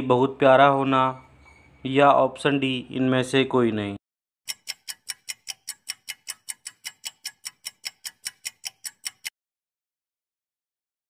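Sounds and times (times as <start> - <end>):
clock ticking: 4.5 - 9.3.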